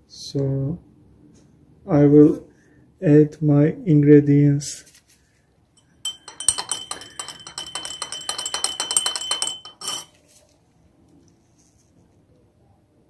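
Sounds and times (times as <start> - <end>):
teaspoon clinking against glass mug: 5.8 - 10.2.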